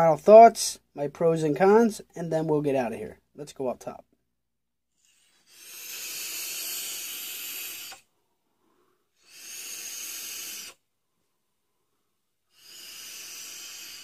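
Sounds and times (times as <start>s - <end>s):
vape drag hissing: 5.0s - 8.1s, 9.2s - 10.8s, 12.6s - 14.0s
breath exhaling: 5.0s - 10.9s, 12.5s - 14.0s.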